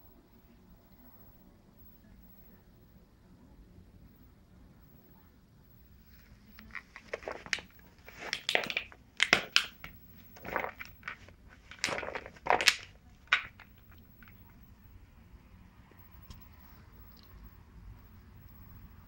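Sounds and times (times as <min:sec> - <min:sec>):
dog chewing plastic bottle: 0:06.6 - 0:14.4.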